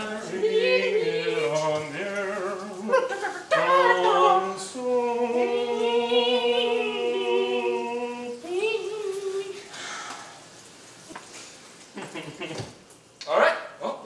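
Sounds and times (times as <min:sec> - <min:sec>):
person singing: 0:00.0 - 0:09.7.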